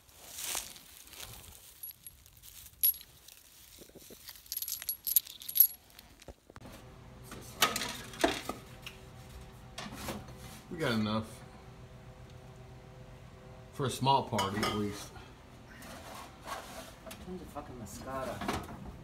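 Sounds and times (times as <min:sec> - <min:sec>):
shell casings clinking: 0:01.8 - 0:03.1, 0:04.5 - 0:06.1.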